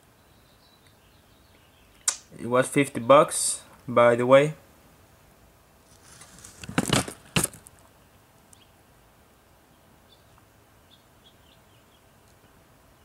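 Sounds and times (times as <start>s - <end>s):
loud rustling or scraping: 5.8s - 7.8s.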